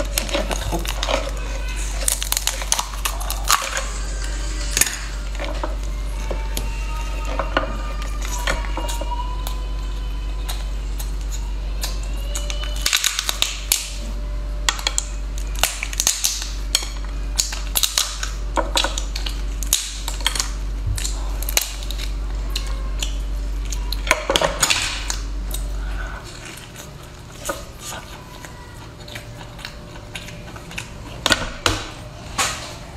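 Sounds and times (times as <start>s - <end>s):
lobster shell cracking: 0.0s - 4.0s, 10.4s - 14.0s, 14.6s - 25.7s
low steady hum: 0.0s - 32.9s.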